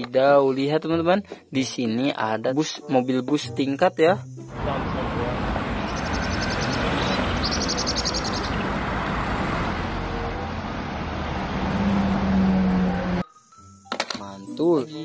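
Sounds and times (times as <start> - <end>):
road traffic noise: 4.5 - 13.4
bus engine hum: 4.6 - 13.2
rapid high chirping: 5.8 - 8.7.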